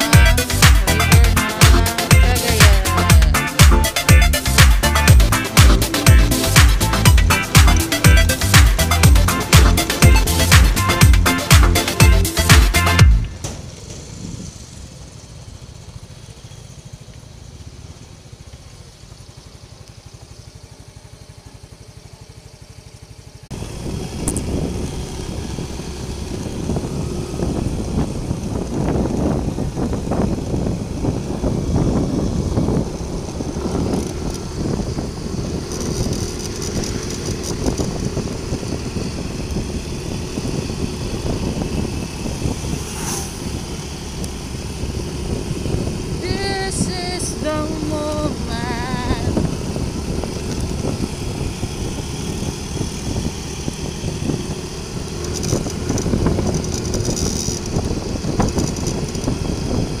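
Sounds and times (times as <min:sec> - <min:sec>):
scooter engine running: 0:00.0 - 1:00.0
wind buffeting microphone: 0:23.5 - 1:00.0.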